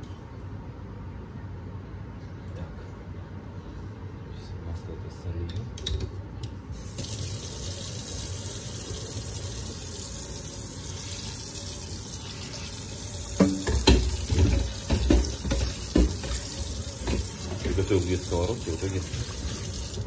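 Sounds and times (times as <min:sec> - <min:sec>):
tap running into sink: 0:13.3 - 0:20.0
frying pan knocking and clattering: 0:13.4 - 0:17.8.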